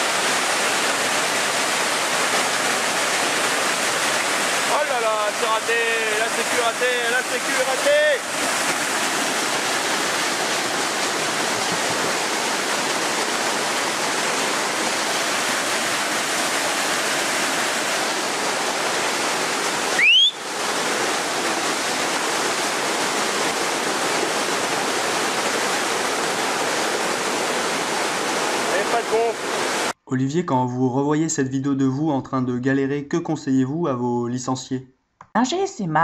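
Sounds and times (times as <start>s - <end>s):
whitewater rapids rushing: 0.0s - 30.0s
rising whistle: 19.9s - 20.4s.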